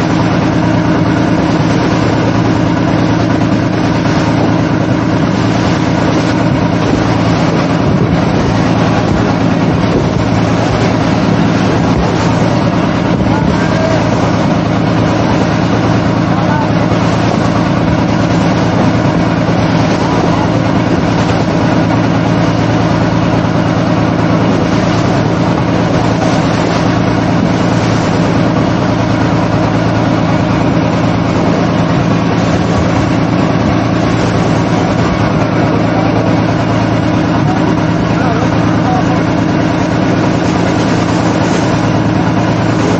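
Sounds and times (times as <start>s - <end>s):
boat engine droning: 0.0s - 42.9s
water rushing along hull: 0.0s - 42.9s.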